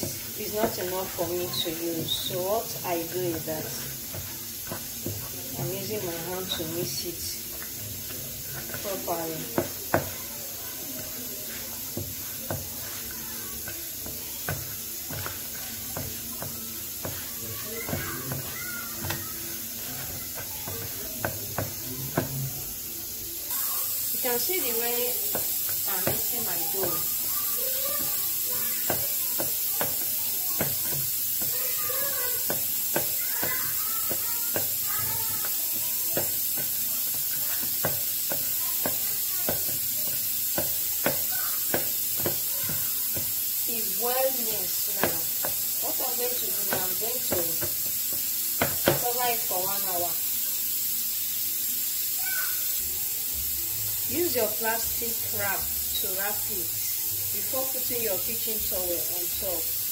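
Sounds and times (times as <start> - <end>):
bread dough thumping: 0.0 - 10.3, 10.9 - 22.5, 25.2 - 43.4, 44.2 - 49.2
steady hiss: 0.0 - 59.9.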